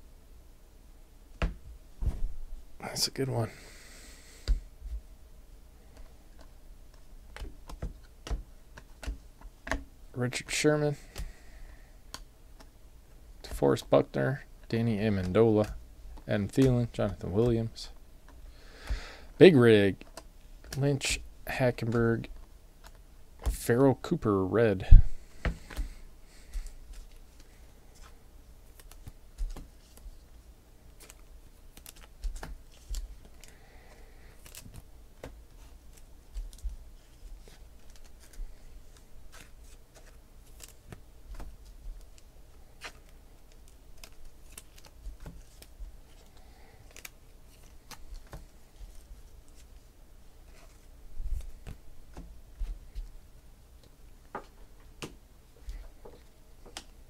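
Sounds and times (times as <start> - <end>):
soft thumps of cards: 1.4 - 2.4
cards clicking and tapping: 5.9 - 9.9, 10.9 - 11.4, 15.0 - 17.7, 28.7 - 30.2, 31.0 - 42.2, 42.8 - 49.7.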